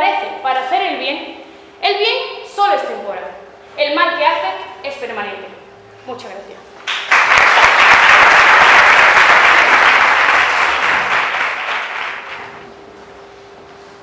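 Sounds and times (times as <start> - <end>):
faint steady hum: 0.0 - 14.0
audience applauding: 6.8 - 12.6.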